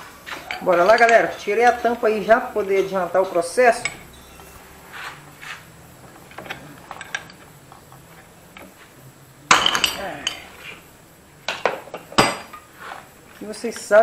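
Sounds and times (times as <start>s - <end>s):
wrench clinking on metal: 0.5s - 4.6s.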